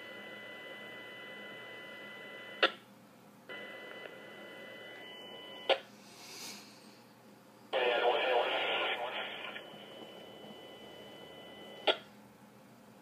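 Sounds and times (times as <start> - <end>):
radio static with steady tones: 7.8 - 12.0.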